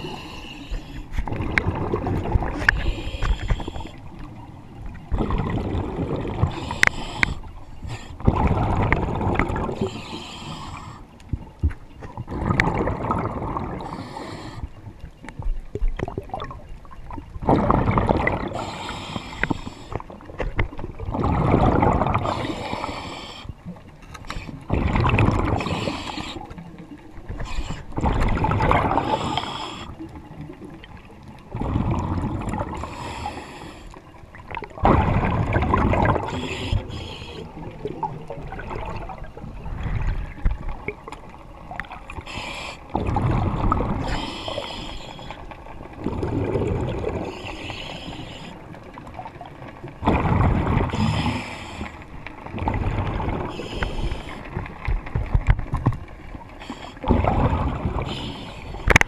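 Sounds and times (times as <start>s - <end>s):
exhaled bubbles burbling underwater: 0.0s - 23.9s, 24.5s - 59.0s.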